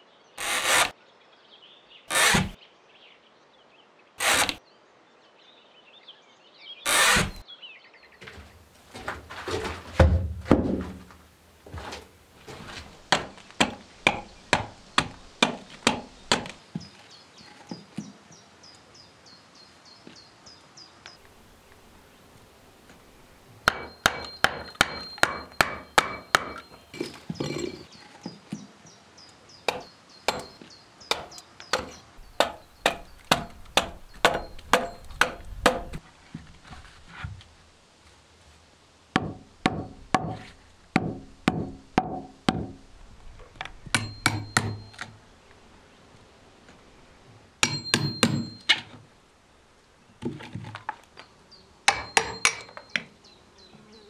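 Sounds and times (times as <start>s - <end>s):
hand tool striking wood: 13.1s - 16.6s, 23.6s - 27.7s, 29.7s - 36.0s, 39.2s - 42.8s, 43.9s - 44.9s, 47.6s - 48.8s, 51.9s - 52.8s.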